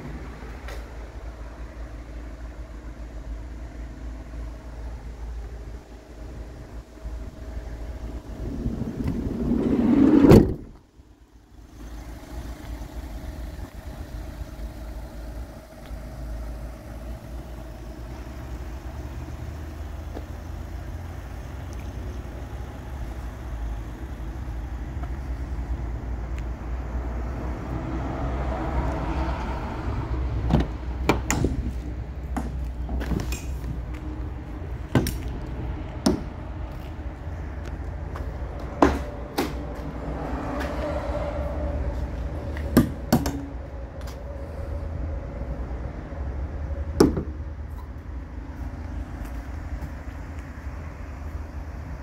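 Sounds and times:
steady low rumble: 0.0 - 52.0
van door sliding shut: 8.2 - 10.8.

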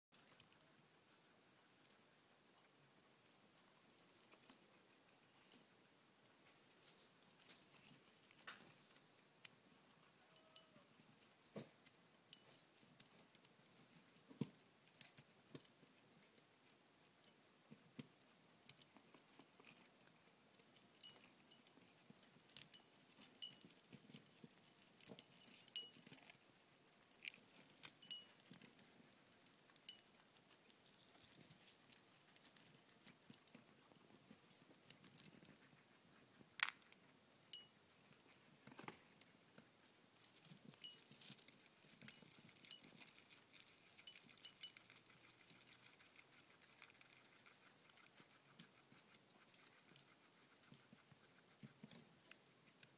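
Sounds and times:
guinea pigs chewing greens: 0.1 - 52.9.

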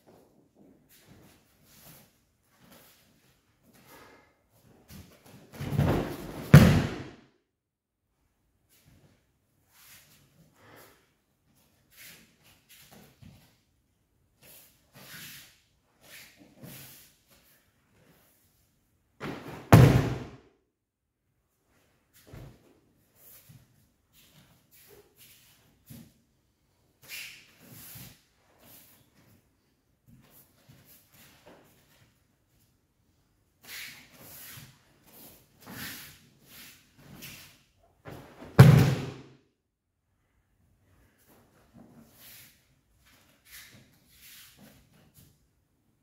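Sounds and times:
body landing on mats with slap: 5.5 - 7.2, 19.2 - 20.4, 38.1 - 39.3.

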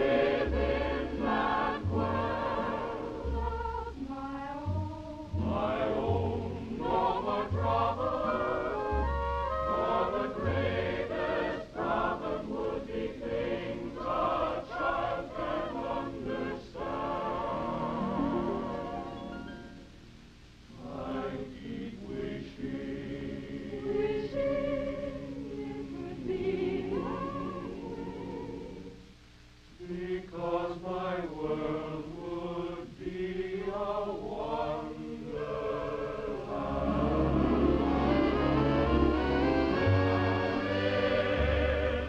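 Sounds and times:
musical backing: 0.0 - 29.1, 34.4 - 42.0
men singing in chorus: 5.4 - 8.7, 9.8 - 18.2.

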